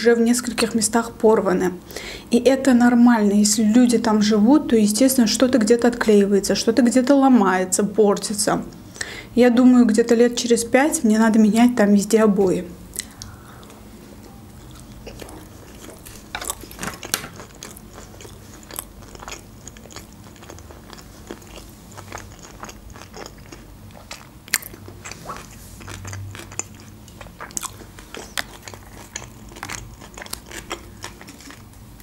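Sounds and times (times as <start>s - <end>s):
crunchy chewing: 12.9s - 32.0s.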